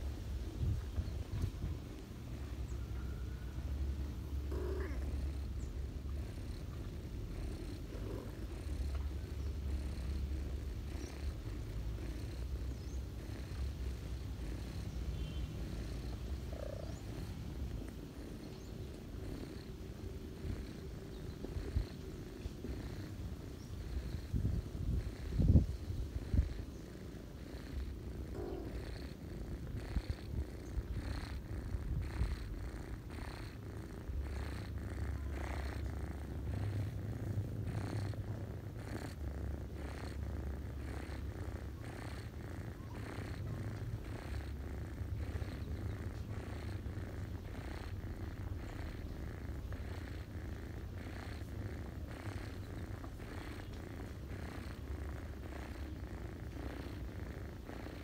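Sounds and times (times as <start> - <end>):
cat purring: 0.0 - 58.0.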